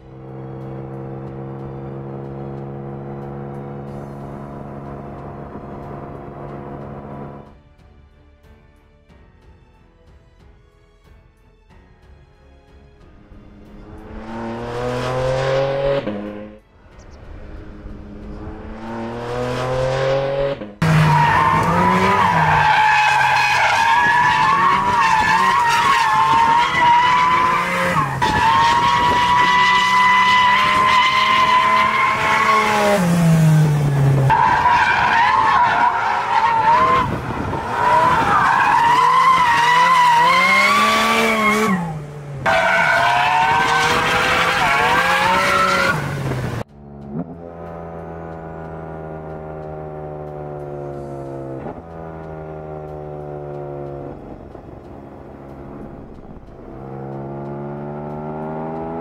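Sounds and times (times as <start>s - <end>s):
car engine revving hard: 13.8s - 16.6s, 17.7s - 59.0s
tyres squealing: 20.8s - 33.0s, 34.3s - 41.9s.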